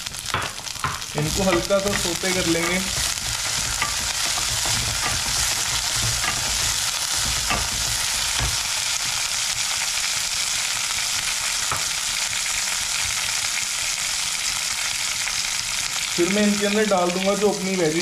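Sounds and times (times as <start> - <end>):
vegetables sizzling in hot oil: 0.0 - 18.0
wooden spatula knocking: 0.2 - 9.2.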